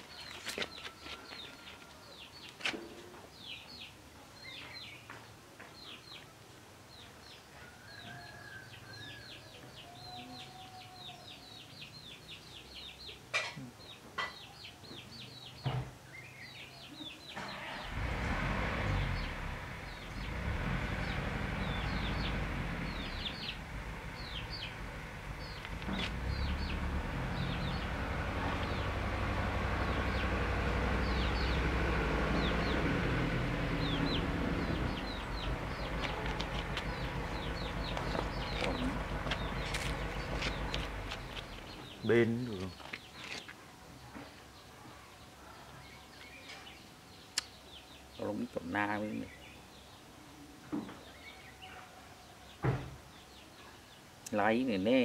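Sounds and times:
small birds chirping: 0.0 - 55.0
low rumbling noise: 17.7 - 42.0.

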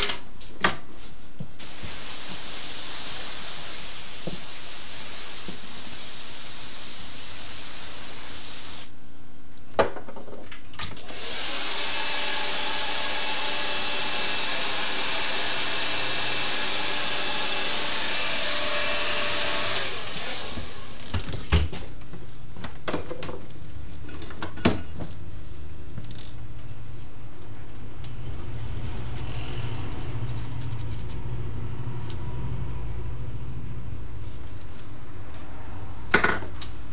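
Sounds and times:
spray hiss: 1.6 - 8.9
hair dryer running: 11.0 - 21.1.

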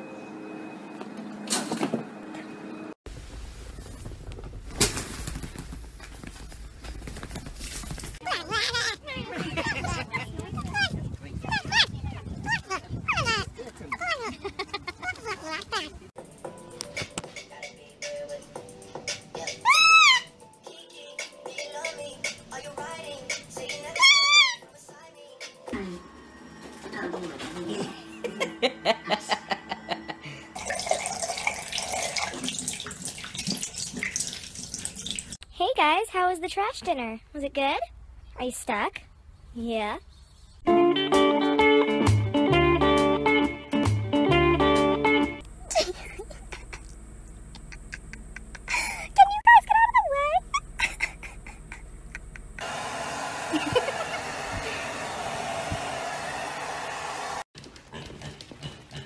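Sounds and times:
tap water running into sink: 30.6 - 35.4
hair dryer blowing: 52.6 - 57.5.

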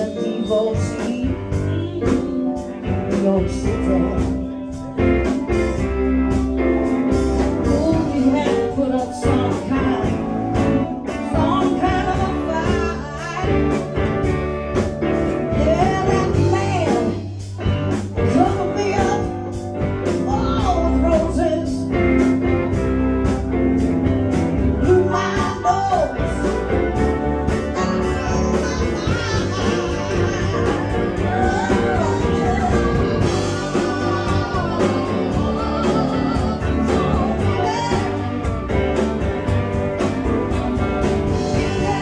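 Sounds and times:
bass: 0.0 - 42.0
drums: 0.0 - 42.0
electric guitars: 0.0 - 42.0
keyboard: 0.0 - 42.0.

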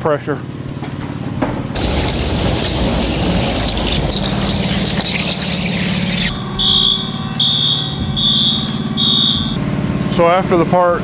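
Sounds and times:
loud hiss: 1.8 - 6.3
high warning beeper: 1.8 - 9.6
machine hum: 1.8 - 10.1.

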